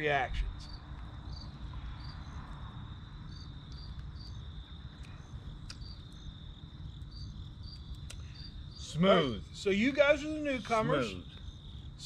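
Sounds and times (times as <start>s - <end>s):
insects trilling: 0.0s - 12.0s
insect chirps: 0.3s - 12.0s
faint clicks: 5.0s - 6.2s, 7.7s - 8.3s.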